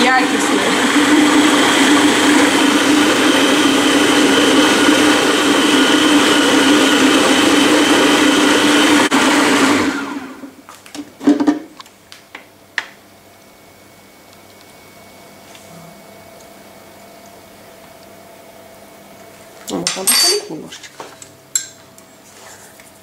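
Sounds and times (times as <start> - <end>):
food processor motor running: 0.0 - 10.5.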